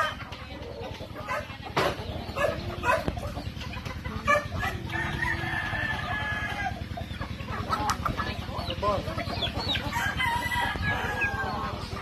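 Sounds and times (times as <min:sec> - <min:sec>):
chickens clucking: 0:00.0 - 0:12.0
rooster crowing: 0:04.3 - 0:06.8, 0:09.9 - 0:11.6.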